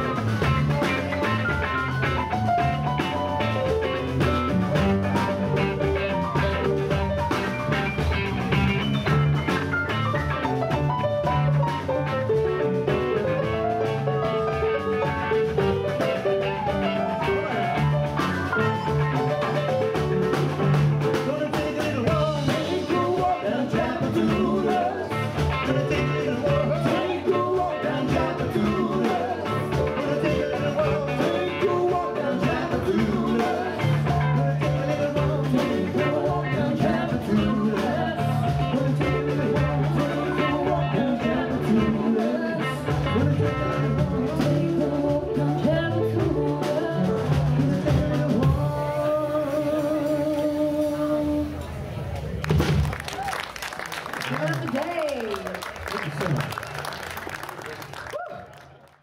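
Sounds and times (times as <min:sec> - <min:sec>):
live blues band playing: 0:00.0 - 0:58.2
person singing: 0:10.8 - 0:51.7.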